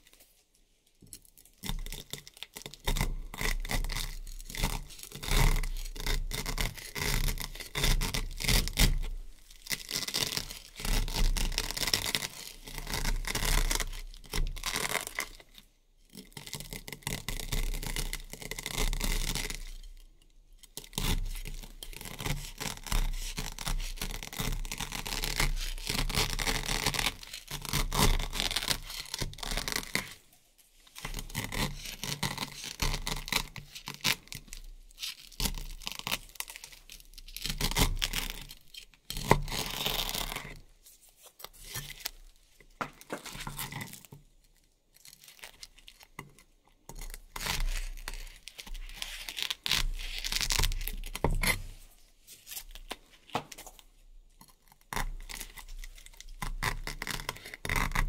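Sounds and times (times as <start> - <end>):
velcro ripping and crackling: 1.4 - 15.4, 20.8 - 42.4, 47.0 - 53.8, 54.8 - 58.0.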